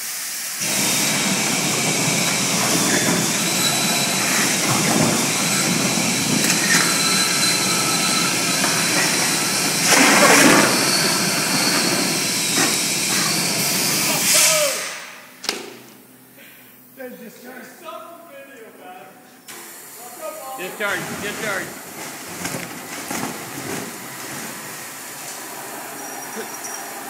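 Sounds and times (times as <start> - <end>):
industrial vacuum running: 0.0 - 15.9, 19.4 - 27.0.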